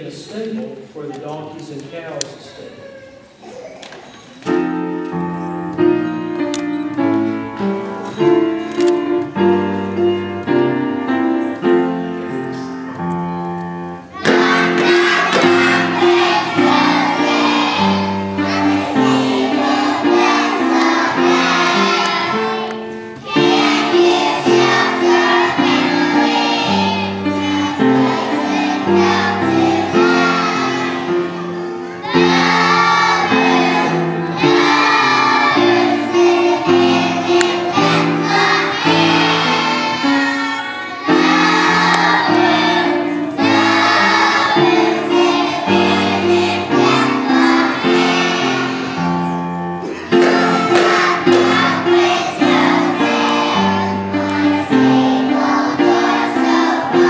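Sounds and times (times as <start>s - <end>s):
piano playing: 4.2s - 57.0s
children singing together: 13.9s - 57.0s.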